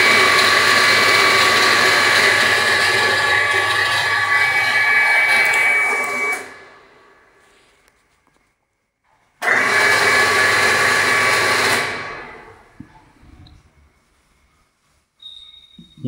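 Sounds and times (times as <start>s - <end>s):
electric cooling fan whirring: 0.0s - 7.4s, 9.4s - 14.3s.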